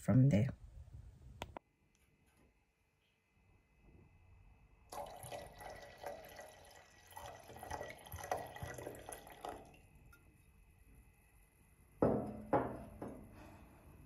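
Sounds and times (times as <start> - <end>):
wine pouring into a glass: 4.9 - 10.2.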